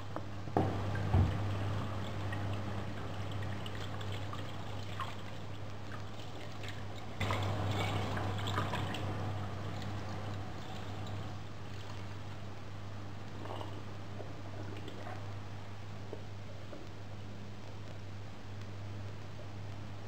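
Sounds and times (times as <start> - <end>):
steady low hum: 0.0 - 20.0
tap water running into sink: 0.6 - 5.3.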